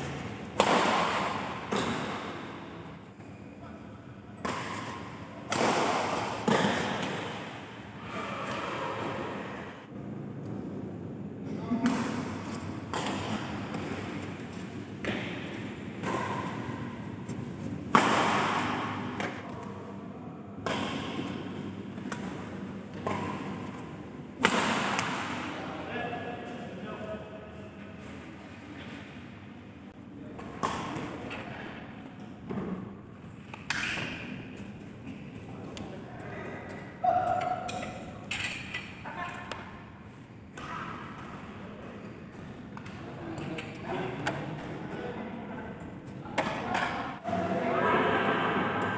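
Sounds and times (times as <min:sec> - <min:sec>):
rackets hitting shuttlecock: 0:00.0 - 0:02.6, 0:04.4 - 0:07.6, 0:11.8 - 0:19.6, 0:20.6 - 0:23.8, 0:24.4 - 0:25.5, 0:33.5 - 0:34.4.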